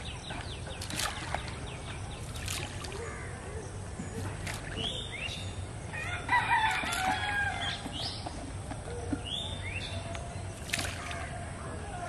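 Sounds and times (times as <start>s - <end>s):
small birds chirping: 0.0s - 6.2s
rooster crowing: 5.9s - 7.8s.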